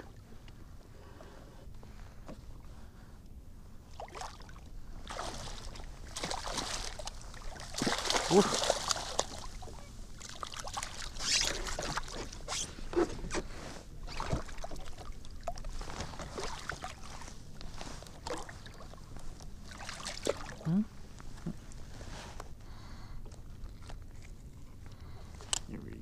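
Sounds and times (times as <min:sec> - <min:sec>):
fish splashing at water surface: 0:05.1 - 0:09.6.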